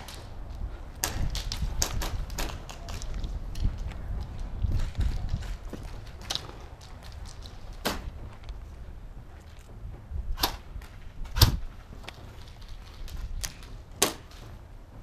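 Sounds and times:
steady low rumble: 0.0s - 15.0s
airsoft gun cracks: 10.4s - 10.6s, 11.4s - 14.4s.

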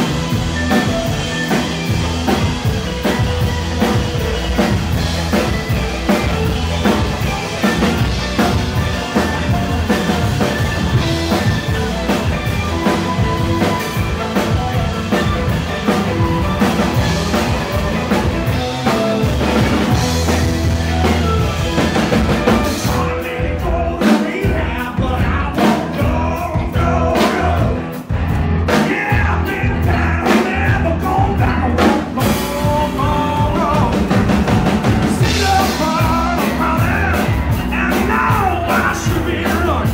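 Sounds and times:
electric guitar lead: 0.0s - 39.9s
live blues-rock band: 0.0s - 39.9s.

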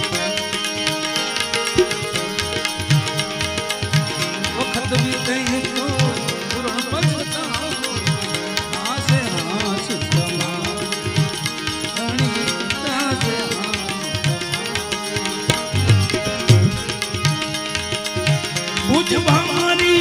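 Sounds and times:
harmonium chords: 0.0s - 20.0s
hand drum beat: 1.6s - 4.3s
man singing: 4.2s - 15.5s, 18.8s - 20.0s.

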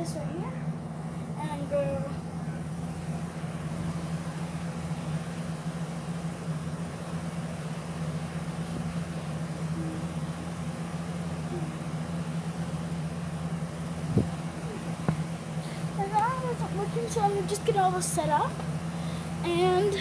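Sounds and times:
constant hiss: 0.0s - 20.0s
low mechanical hum: 0.0s - 20.0s.

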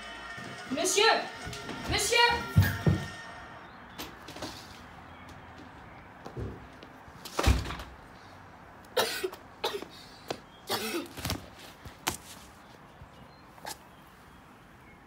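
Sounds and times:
boy coughing and gasping: 9.0s - 10.0s, 10.7s - 11.2s.

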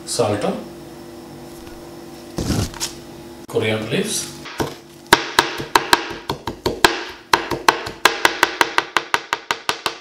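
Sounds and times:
knife chopping on cutting board: 4.5s - 10.0s.

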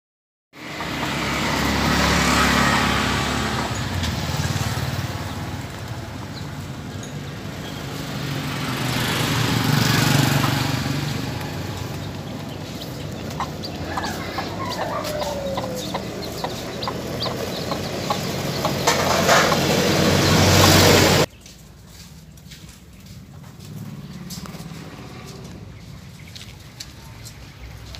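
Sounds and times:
loud rushing noise: 8.4s - 21.3s
quail chicks chirping: 10.2s - 21.3s.

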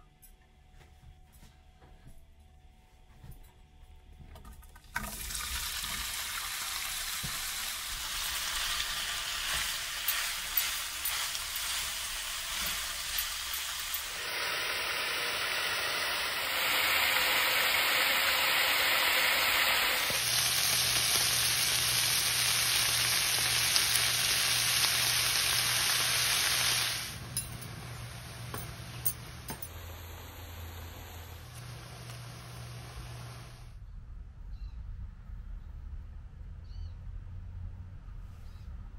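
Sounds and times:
sausage sizzling in hot oil: 5.0s - 27.2s.

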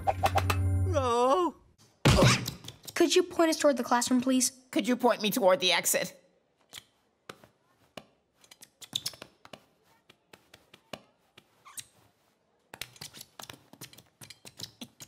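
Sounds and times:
cartoon clicks and creaks: 8.4s - 9.5s, 11.6s - 12.0s, 12.8s - 15.0s.

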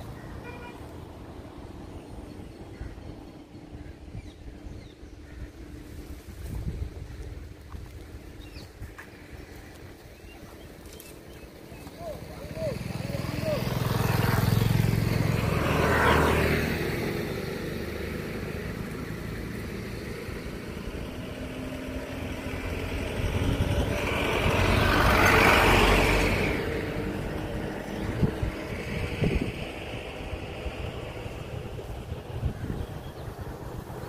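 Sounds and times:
road vehicle passing: 0.0s - 34.0s.

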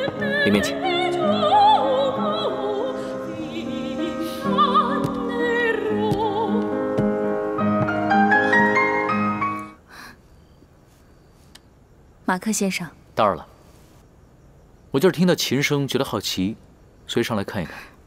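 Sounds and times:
woman singing with vibrato: 0.0s - 7.1s
grand piano accompaniment: 2.1s - 9.8s.

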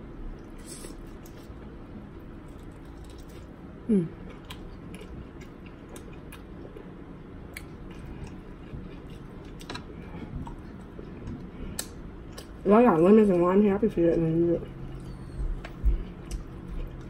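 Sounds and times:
chewing: 14.8s - 17.0s.

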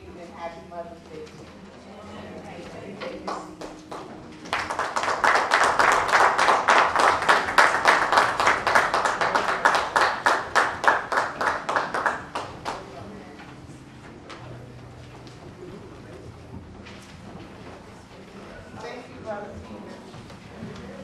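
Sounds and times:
people clapping in time: 3.0s - 13.1s.

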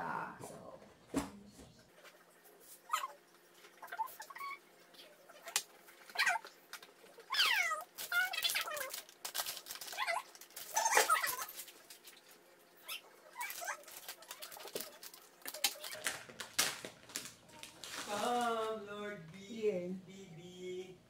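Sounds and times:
plastic wrapping crinkling: 5.5s - 18.8s.

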